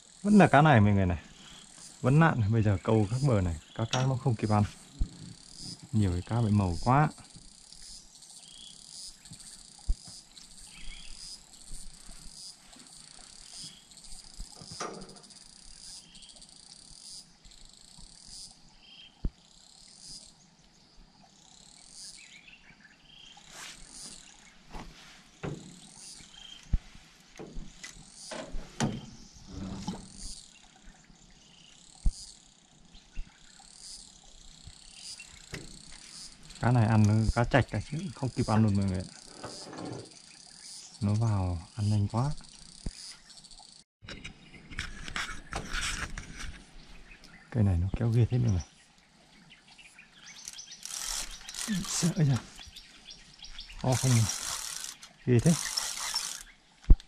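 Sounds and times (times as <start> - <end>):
light knocks and clicks: 14.6 - 15.3, 24.8 - 25.9, 27.4 - 30.2
small animal chirping: 53.5 - 56.5.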